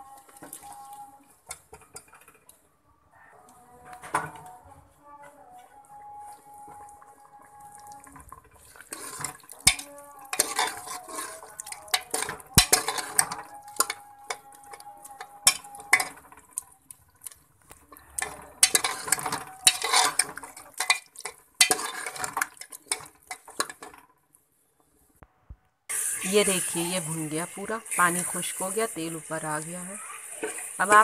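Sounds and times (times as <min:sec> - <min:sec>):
ladle scraping a metal pot: 0:05.3 - 0:24.1.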